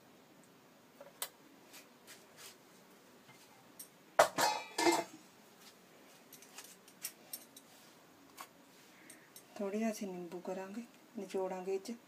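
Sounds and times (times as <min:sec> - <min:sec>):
steel kitchenware clattering: 0:04.2 - 0:05.2.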